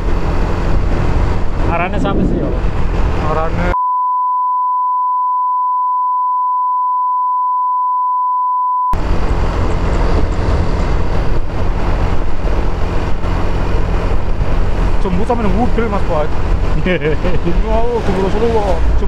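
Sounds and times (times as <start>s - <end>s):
wind buffeting microphone: 0.0s - 3.6s, 9.0s - 16.9s
motor scooter engine and road noise: 0.0s - 3.7s, 9.0s - 19.0s
high-pitched censor bleep: 3.8s - 9.0s.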